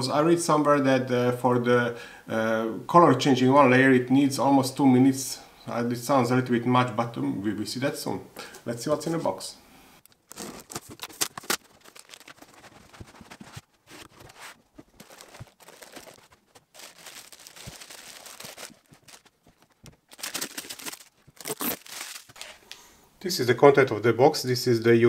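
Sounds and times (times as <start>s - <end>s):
plastic bag crinkling: 10.1s - 22.8s
box cutter slitting tape: 10.3s - 11.8s, 20.1s - 22.6s
rustles and scrapes: 10.3s - 22.7s.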